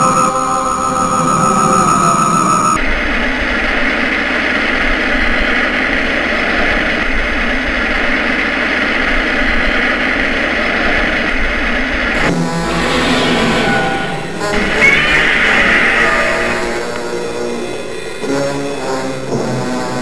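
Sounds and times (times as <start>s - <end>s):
music: 12.2s - 20.0s.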